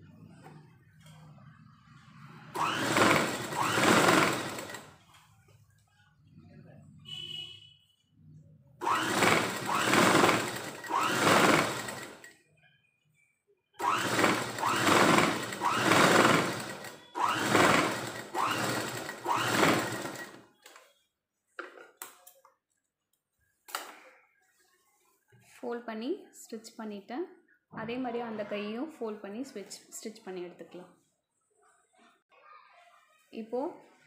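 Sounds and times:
sewing machine stitching: 2.5s - 5.2s, 8.8s - 12.4s, 13.8s - 20.8s.

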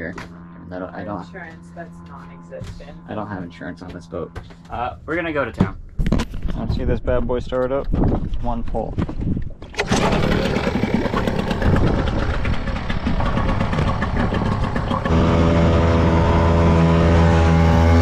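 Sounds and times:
outboard motor running: 0.0s - 4.9s, 9.7s - 18.0s
outboard motor pull-start: 9.6s - 18.0s.

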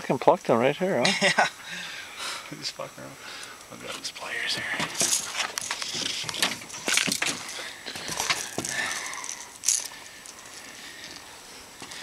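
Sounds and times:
fishing hook handling clicks and rattles: 4.8s - 11.2s.

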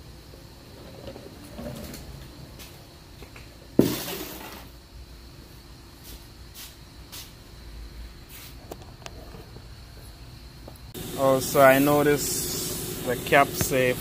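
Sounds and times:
hydraulic hiss: 11.0s - 14.0s.

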